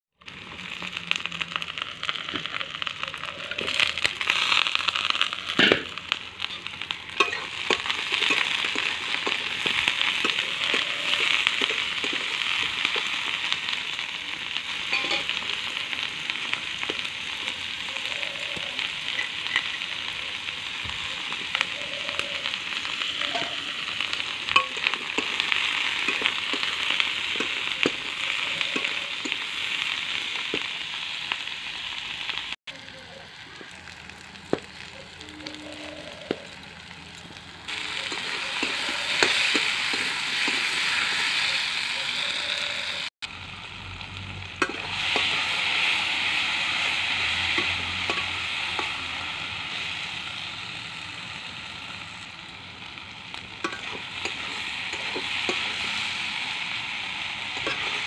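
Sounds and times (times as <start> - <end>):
vegetables sizzling in oil: 0.2 - 58.0
spatula scraping pan: 37.8 - 41.3, 53.6 - 56.3.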